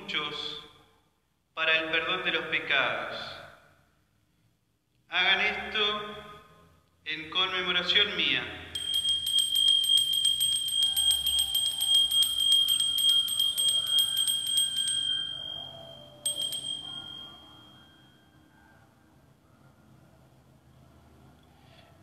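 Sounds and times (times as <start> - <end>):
bell ringing: 8.8 - 18.4.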